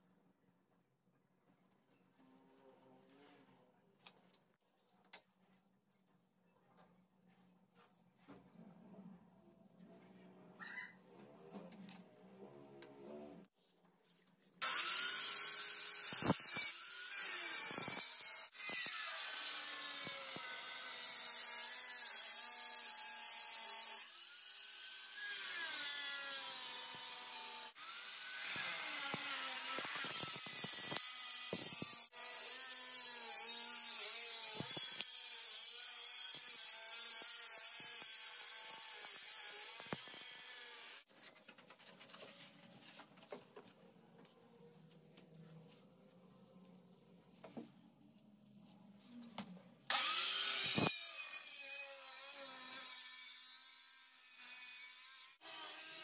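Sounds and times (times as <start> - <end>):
angle grinder cutting stone: 14.6 - 41.1, 49.9 - 56.0.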